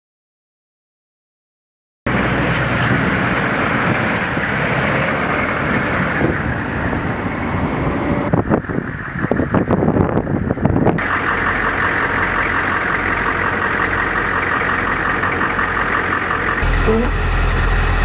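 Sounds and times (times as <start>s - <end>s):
vehicle driving on slush: 2.1s - 8.3s, 11.0s - 18.0s.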